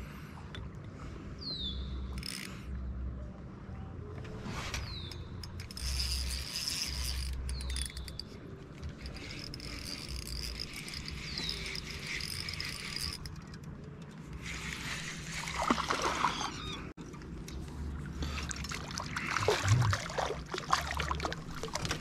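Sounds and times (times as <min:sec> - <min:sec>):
fishing reel clicking: 0:02.1 - 0:02.7, 0:05.0 - 0:15.2.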